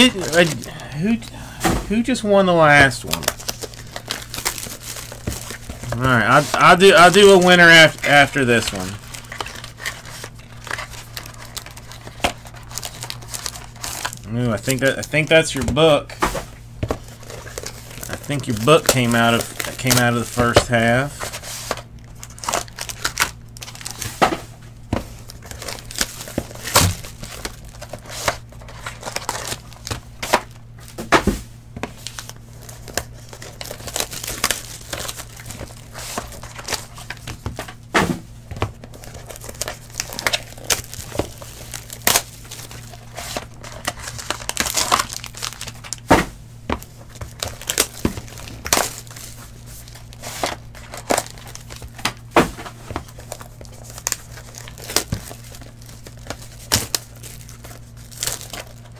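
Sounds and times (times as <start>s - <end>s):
foil wrappers crinkling and tearing: 0.0s - 31.0s, 31.8s - 58.9s.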